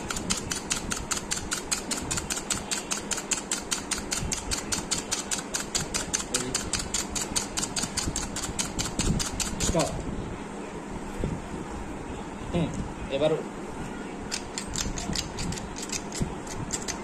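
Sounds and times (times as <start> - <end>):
rapid mechanical ticking: 0.1 - 9.9.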